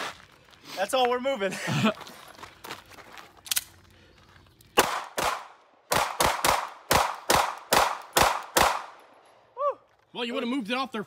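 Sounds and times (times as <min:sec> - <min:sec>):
pistol shots: 0:04.8 - 0:09.0.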